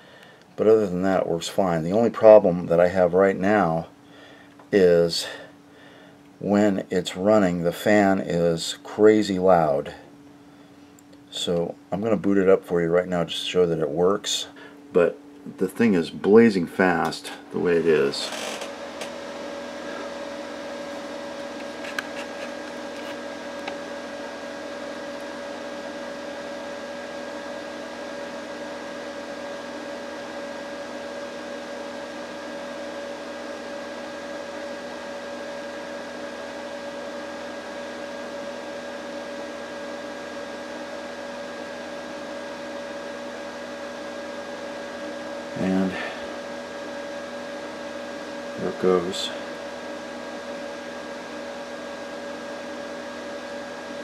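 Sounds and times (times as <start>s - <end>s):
constant hum: 0.0s - 26.6s, 43.4s - 52.7s
computer fans whirring: 0.0s - 54.0s.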